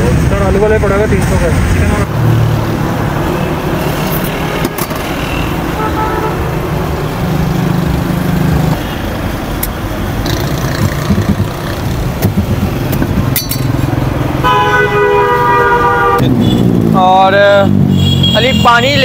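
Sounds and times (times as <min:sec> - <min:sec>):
vehicle engines running: 0:00.0 - 0:19.0
vehicle horn: 0:03.8 - 0:06.7, 0:14.4 - 0:16.8, 0:17.9 - 0:18.9.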